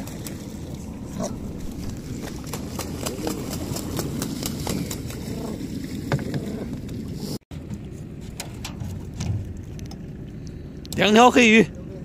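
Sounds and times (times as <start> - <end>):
water splashing: 0.0 - 11.6
steady low rumble: 0.0 - 12.0.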